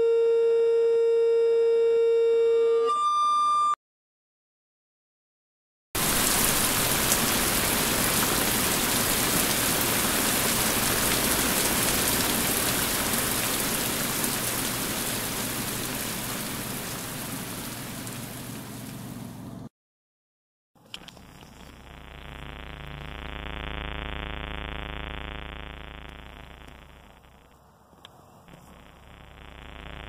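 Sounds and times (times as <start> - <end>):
steady rain: 6.0 - 19.4.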